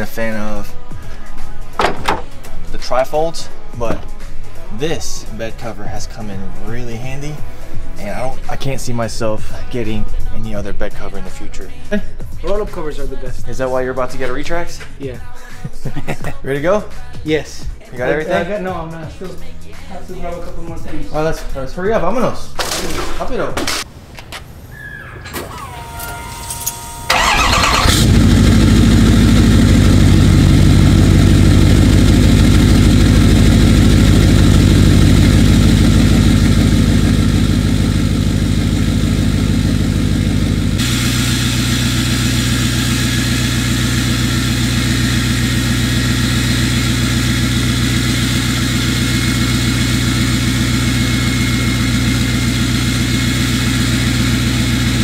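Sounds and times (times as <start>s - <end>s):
diesel engine starting and idling: 24.7s - 55.0s.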